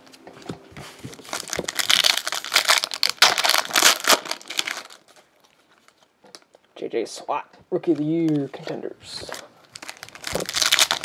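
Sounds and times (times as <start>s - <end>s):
foil wrapper crinkling: 0.8s - 6.6s, 9.2s - 11.0s.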